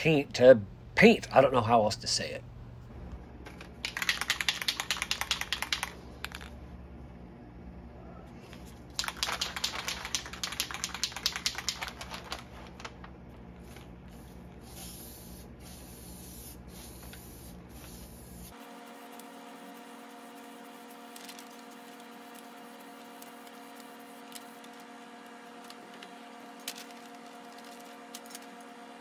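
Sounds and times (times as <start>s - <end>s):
spray can ball rattling: 3.4s - 6.5s, 9.0s - 12.4s
spray paint hissing: 14.1s - 24.8s.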